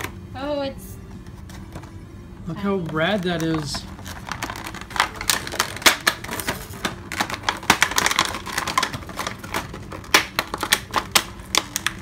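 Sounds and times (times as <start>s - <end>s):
plastic packaging crinkling: 2.6s - 12.0s.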